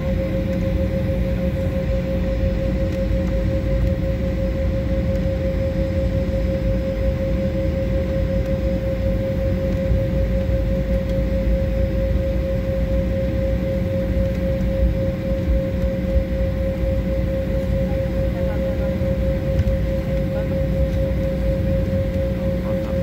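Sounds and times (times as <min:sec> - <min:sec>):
jet engines whining: 0:00.0 - 0:23.0
low cabin rumble and hiss: 0:14.2 - 0:23.0.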